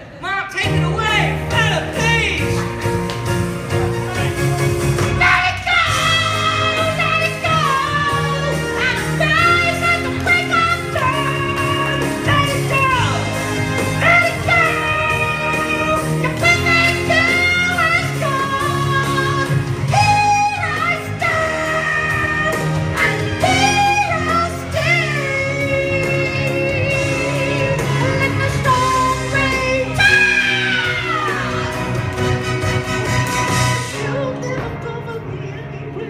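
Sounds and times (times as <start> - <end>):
song over pa speaker: 0.0 - 36.0.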